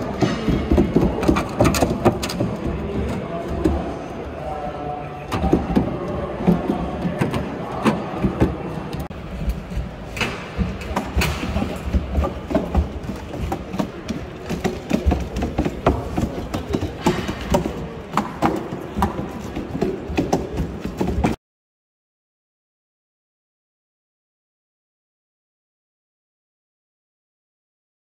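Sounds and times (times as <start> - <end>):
hall background noise: 0.0 - 21.4.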